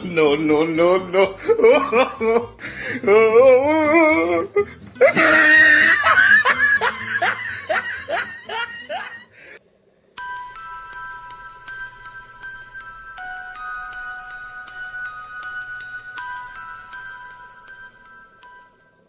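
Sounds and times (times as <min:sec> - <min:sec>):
woman wailing and cackling: 0:01.0 - 0:09.4
chiming tune: 0:10.2 - 0:19.0.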